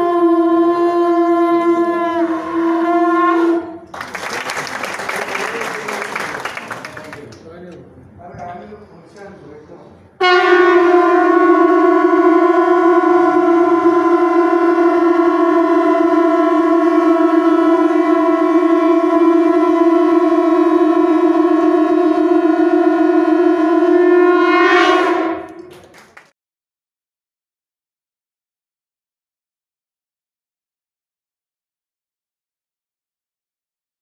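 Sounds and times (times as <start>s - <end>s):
conch shells blown together: 0.0s - 3.9s, 10.2s - 25.7s.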